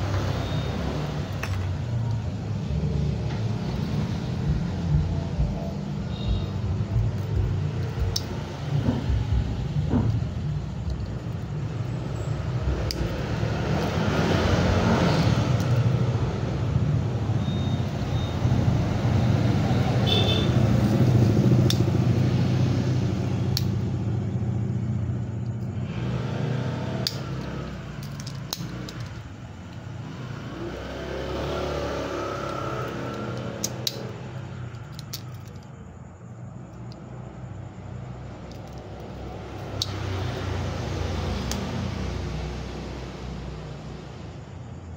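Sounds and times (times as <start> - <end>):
steady low rumble: 1.2 - 13.9
sharp clicks: 23.5 - 23.8, 27.0 - 29.8, 32.4 - 35.7.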